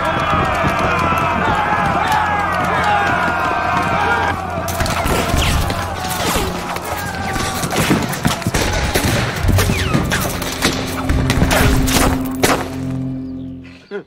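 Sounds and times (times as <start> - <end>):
heavy impacts: 4.6 - 13.6.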